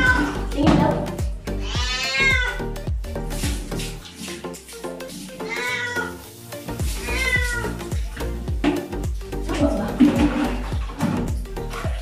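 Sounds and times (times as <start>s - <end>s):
cat meowing: 0.0s - 0.5s, 1.6s - 2.7s, 5.4s - 6.3s, 7.0s - 7.9s
background music: 0.0s - 12.0s.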